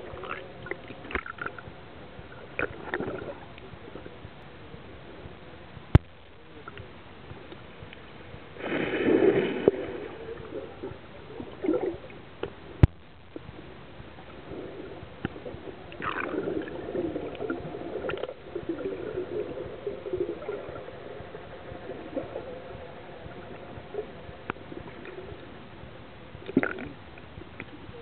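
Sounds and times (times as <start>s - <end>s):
muffled underwater bubbling: 0.0s - 28.0s
rush of water: 8.6s - 12.2s.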